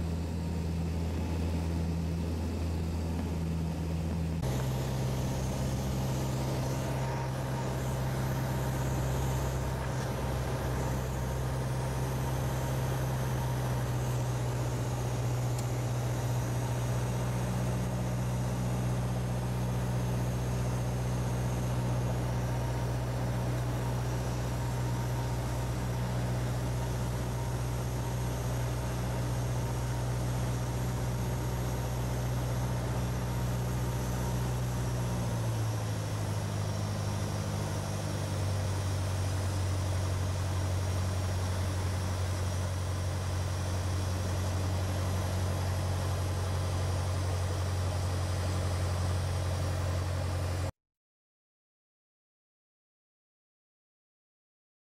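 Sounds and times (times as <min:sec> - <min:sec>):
propeller plane engine drone: 0:00.0 - 0:50.7.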